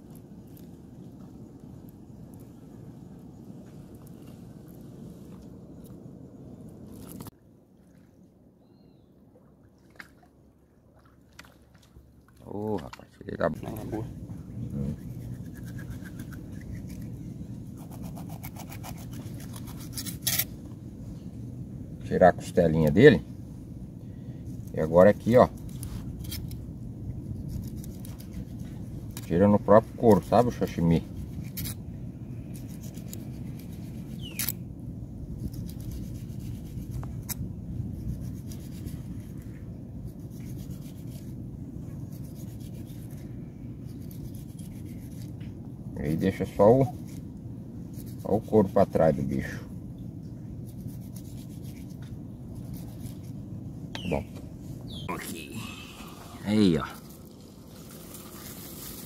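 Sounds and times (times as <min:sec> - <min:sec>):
knife scraping fish skin: 0:14.9 - 0:17.1, 0:17.8 - 0:20.6, 0:27.4 - 0:29.3, 0:31.2 - 0:31.8, 0:32.4 - 0:34.6, 0:35.4 - 0:39.2, 0:43.9 - 0:45.4
knife scraping fish on stone: 0:15.0 - 0:17.1, 0:17.8 - 0:20.5.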